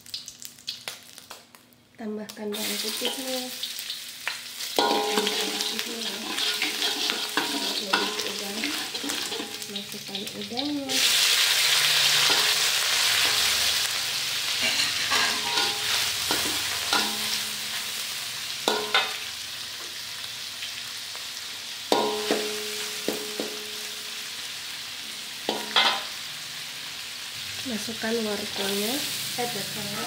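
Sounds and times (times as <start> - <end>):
shrimp sizzling in hot oil: 0.0 - 1.5, 2.3 - 30.0
metal spatula clanking on wok: 4.8 - 9.8, 14.5 - 17.7, 18.6 - 19.2, 21.9 - 23.9, 25.5 - 26.2.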